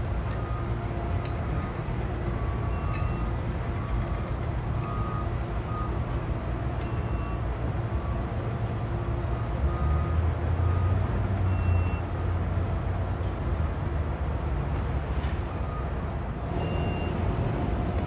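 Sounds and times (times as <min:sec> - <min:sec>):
distant reversing alarm beeping: 0:00.3 - 0:06.0, 0:06.8 - 0:08.3, 0:09.4 - 0:12.1, 0:15.6 - 0:18.0
demolition machinery rumbling: 0:16.3 - 0:18.0.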